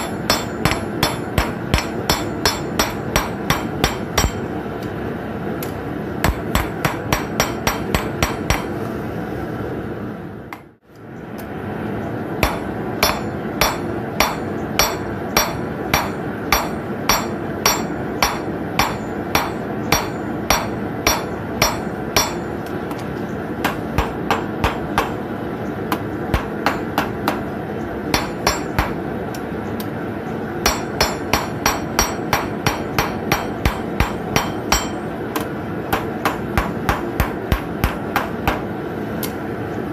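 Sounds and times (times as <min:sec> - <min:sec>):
hammer striking nail on anvil: 0:00.0 - 0:04.5, 0:06.2 - 0:08.7, 0:12.4 - 0:22.6, 0:23.6 - 0:25.2, 0:25.9 - 0:27.4, 0:28.1 - 0:29.0, 0:30.6 - 0:38.7
steady background noise: 0:00.0 - 0:39.9.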